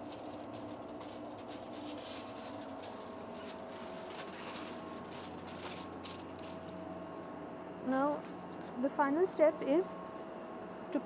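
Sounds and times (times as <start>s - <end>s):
soft rustling and handling: 0.0s - 7.4s
lab equipment humming: 0.0s - 11.0s.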